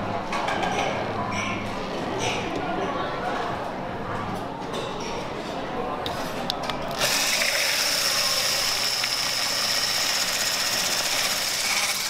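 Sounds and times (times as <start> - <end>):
hand blender whining: 7.0 - 12.0.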